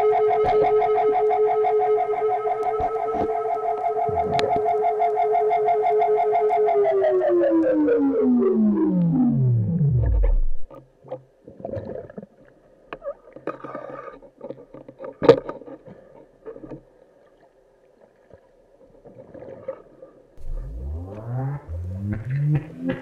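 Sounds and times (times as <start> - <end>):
synthesized tone sweeping down: 0.0 - 10.7, 20.4 - 23.0
muffled underwater hum: 0.0 - 10.8, 20.4 - 23.0.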